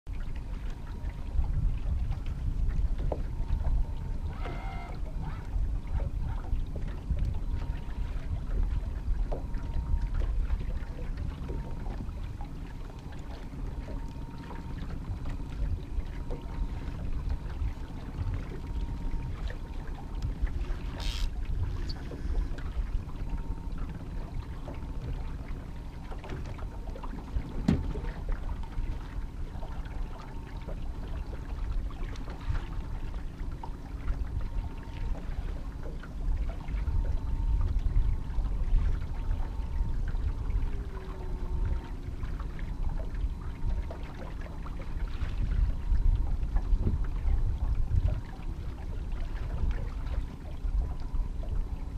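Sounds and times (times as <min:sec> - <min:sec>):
wind: 0:00.0 - 0:51.9
boat engine rumble: 0:00.1 - 0:51.9
faint hum: 0:00.1 - 0:51.9
water noise: 0:00.1 - 0:51.9
brief high squeak: 0:04.3 - 0:05.5, 0:20.9 - 0:22.3.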